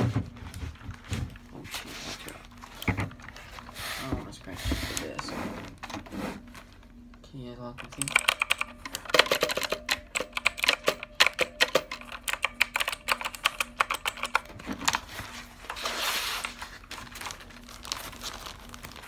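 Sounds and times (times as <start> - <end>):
mechanical keyboard typing: 7.8 - 15.0
scattered clicks: 7.8 - 15.0
packaging rustling: 14.4 - 19.0.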